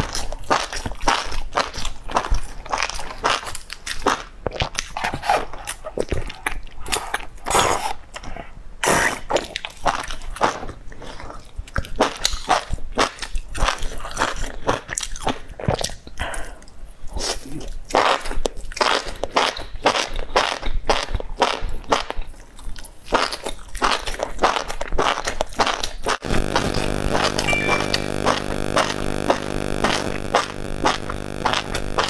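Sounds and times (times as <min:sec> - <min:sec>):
chewing mushrooms crunching: 0:00.0 - 0:08.3, 0:17.2 - 0:27.5, 0:28.1 - 0:32.0.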